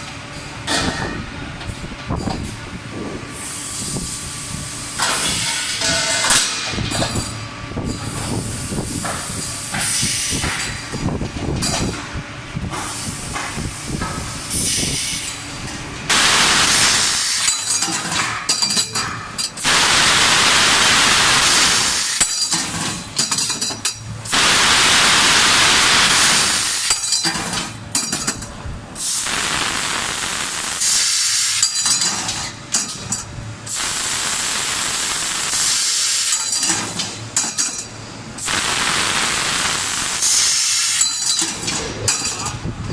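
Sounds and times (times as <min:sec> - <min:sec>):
low mechanical rumbling: 0:00.0 - 0:30.9, 0:31.6 - 0:35.6, 0:36.6 - 0:40.4, 0:41.3 - 0:42.9
loud gas jet hissing: 0:05.0 - 0:06.6, 0:08.2 - 0:10.8, 0:12.7 - 0:15.4, 0:16.1 - 0:18.2, 0:19.6 - 0:23.2, 0:24.2 - 0:27.6, 0:29.0 - 0:32.0, 0:33.7 - 0:37.2, 0:38.4 - 0:42.8.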